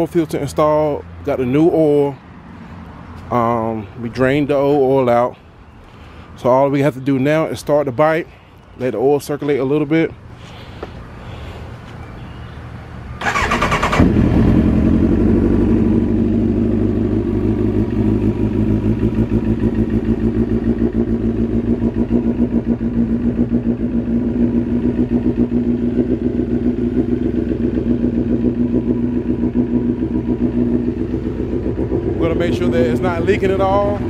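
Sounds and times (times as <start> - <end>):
motorcycle engine starting and idling: 13.1 - 34.0.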